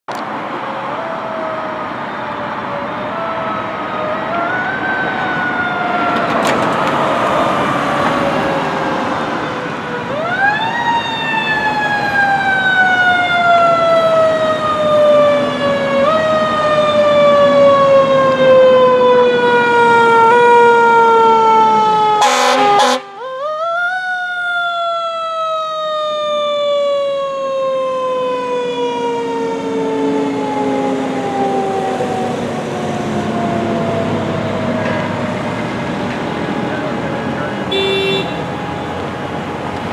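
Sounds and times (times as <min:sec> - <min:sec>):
fire engine siren: 0:00.1 - 0:39.9
short horn blasts: 0:22.2 - 0:23.1, 0:37.7 - 0:38.5.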